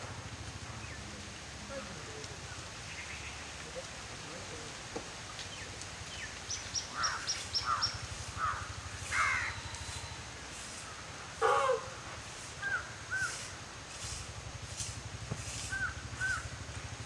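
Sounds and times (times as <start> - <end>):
birds chirping: 2.4 - 3.6, 5.4 - 11.9
harsh caw-like bird calls: 6.8 - 11.9, 12.6 - 13.6, 15.7 - 16.6.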